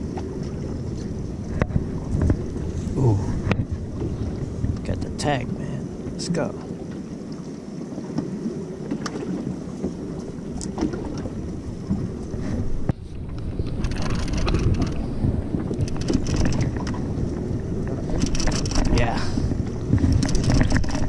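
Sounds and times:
water washing against boat hull: 0.0 - 21.0
wind rumbling on microphone: 0.0 - 21.0
knocks and clicks: 18.1 - 18.9.

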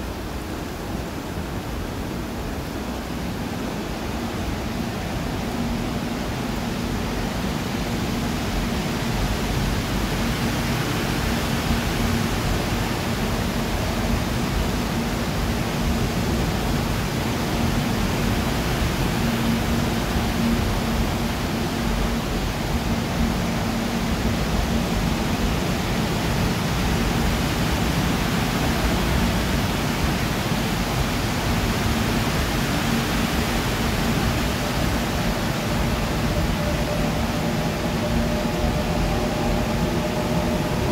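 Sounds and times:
subway train wheels rumbling on rail: 0.0 - 40.9
low hum: 12.0 - 40.9.

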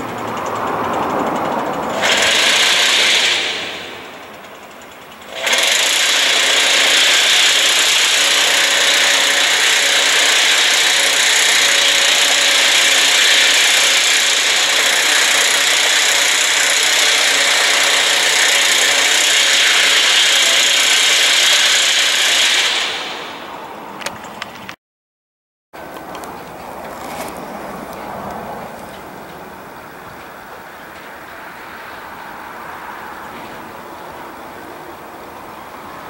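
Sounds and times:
power tool running at high speed: 0.0 - 23.6.

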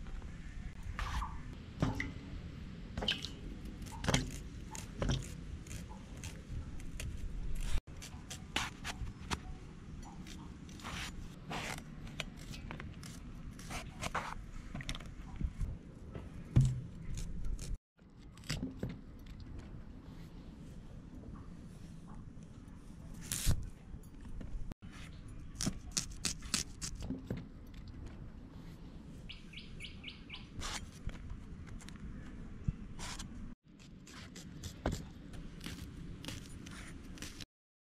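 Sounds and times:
knife slicing eggplant: 3.7 - 9.4, 25.5 - 27.2.

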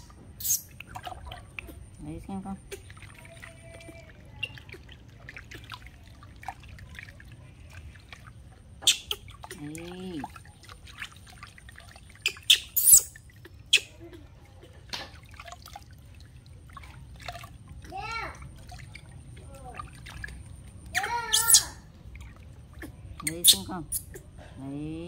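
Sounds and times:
water splashing in a plastic basin: 0.0 - 25.0.

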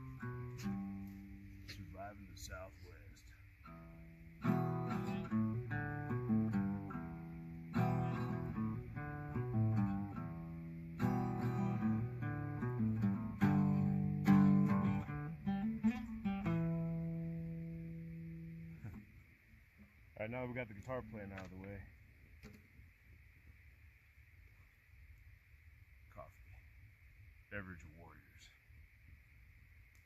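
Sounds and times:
acoustic guitar strumming chords: 0.0 - 2.7, 3.6 - 19.0.

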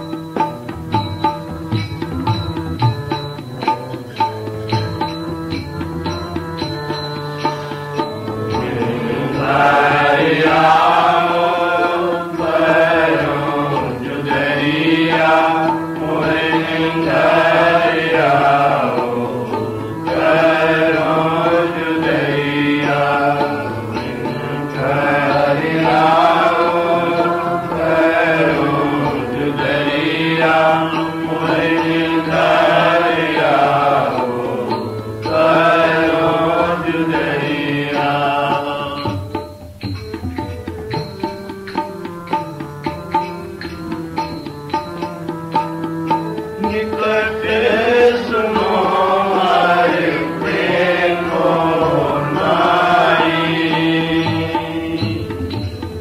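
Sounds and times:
instrumental accompaniment: 0.0 - 56.0
steady drone: 1.0 - 39.1
person singing hymn: 8.4 - 39.2, 46.6 - 55.7.

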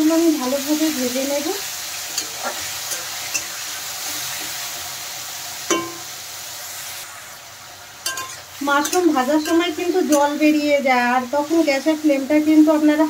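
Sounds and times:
mushrooms sizzling in oil: 0.0 - 13.0
spatula knocking on pan: 5.7 - 6.1.

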